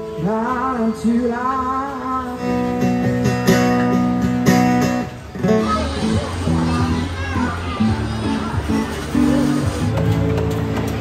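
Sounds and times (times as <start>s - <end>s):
man singing: 0.0s - 3.0s
acoustic guitar strumming: 0.0s - 11.0s
crowd chatter: 0.0s - 11.0s.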